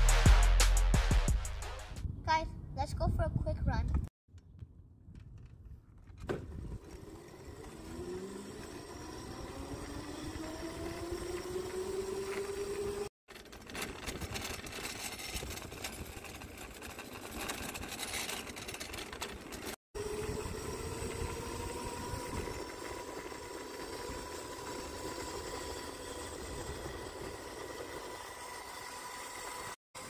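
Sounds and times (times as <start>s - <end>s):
electric motor whine: 6.6s - 13.1s, 20.0s - 30.0s.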